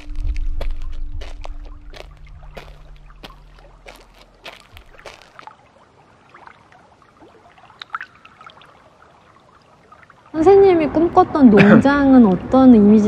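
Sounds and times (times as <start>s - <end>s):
low hum: 0.0s - 5.4s
water trickling and dripping: 0.0s - 13.0s.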